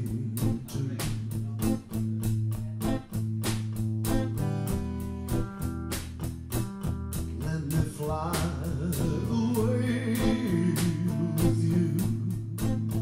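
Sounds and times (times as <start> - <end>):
man singing a slow ballad: 0.0 - 1.7, 7.3 - 13.0
acoustic guitar strumming: 0.0 - 13.0.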